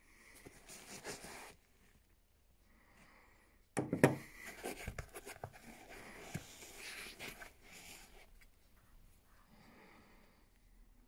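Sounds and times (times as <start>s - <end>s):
case knock and clatter: 3.8s - 4.2s.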